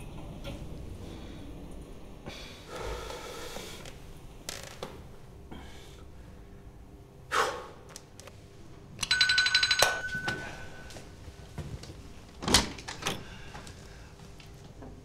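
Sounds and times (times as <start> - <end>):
buzzing doorbell: 9.0 - 11.0.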